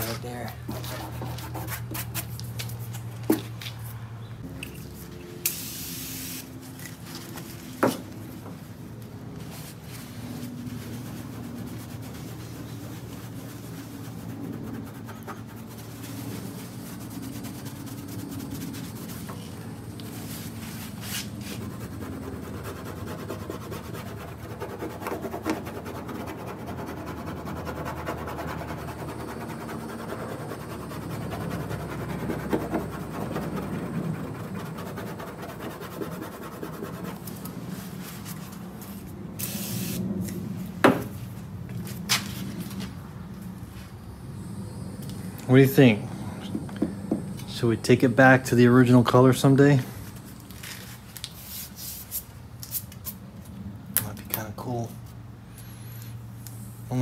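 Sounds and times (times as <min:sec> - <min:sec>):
rubbing on car bodywork: 0:00.0 - 0:03.8, 0:09.3 - 0:40.0
low hum: 0:25.6 - 0:48.8.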